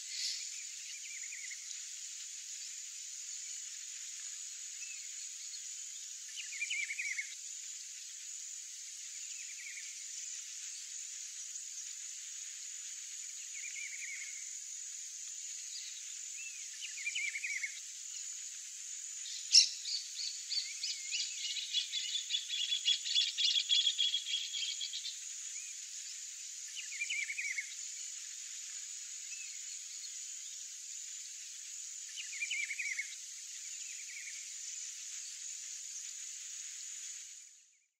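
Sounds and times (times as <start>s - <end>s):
high insect drone: 0.0s - 37.7s
short chirping calls: 19.2s - 25.1s.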